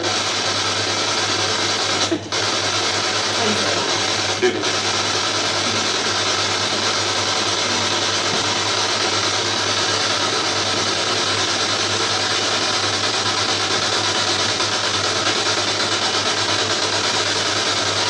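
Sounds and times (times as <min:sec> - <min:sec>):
choppy radio static: 0:00.0 - 0:18.0
steady low hum: 0:01.0 - 0:12.0.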